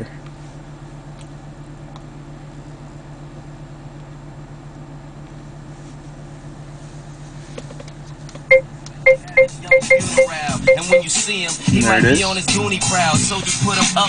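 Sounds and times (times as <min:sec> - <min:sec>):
car cabin low hum: 0:00.0 - 0:14.0
hip-hop track through car speakers: 0:07.4 - 0:14.0.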